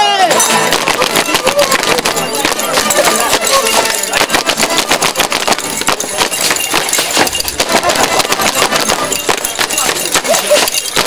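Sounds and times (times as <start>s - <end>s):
handbells jingling rhythmically: 0.3s - 11.0s.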